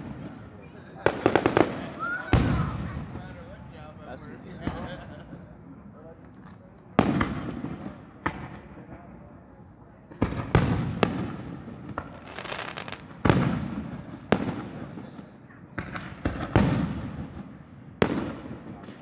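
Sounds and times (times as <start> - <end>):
firework shells booming: 1.0 - 3.8, 6.9 - 9.1, 10.1 - 19.0.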